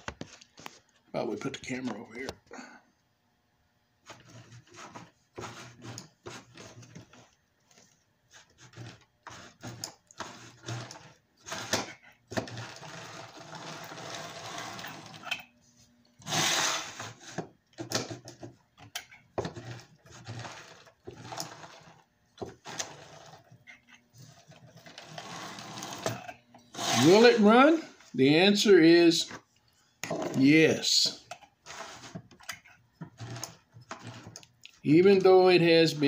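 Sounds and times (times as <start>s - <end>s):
toy train motor whirring: 8.4s - 15.4s, 16.2s - 17.5s, 24.9s - 27.5s.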